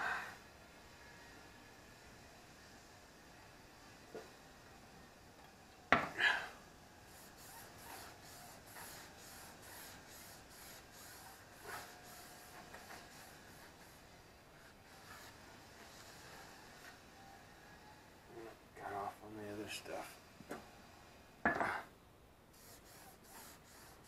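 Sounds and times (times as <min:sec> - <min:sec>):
rag rubbing on rubber tire: 0:07.1 - 0:16.2, 0:22.6 - 0:24.0.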